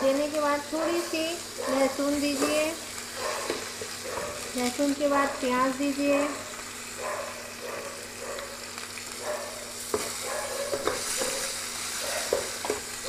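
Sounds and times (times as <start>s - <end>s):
oil sizzling in a frying pan: 0.0s - 13.0s
spatula knocking against pan: 9.9s - 11.5s.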